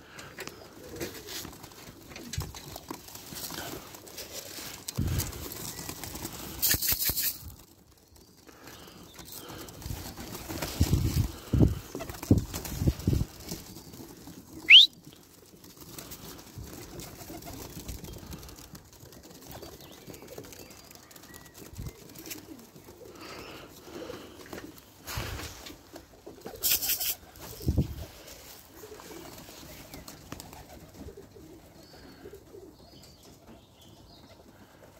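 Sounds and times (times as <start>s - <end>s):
pigeon wings flapping: 0.3s - 28.0s, 28.7s - 31.7s
brief rustles: 6.4s - 7.6s
short rising whistle: 14.7s - 14.9s
pigeons cooing: 21.6s - 34.9s.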